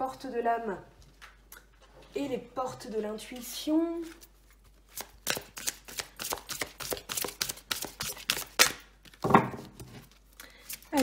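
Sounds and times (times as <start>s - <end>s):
cards being shuffled: 3.3s - 11.0s.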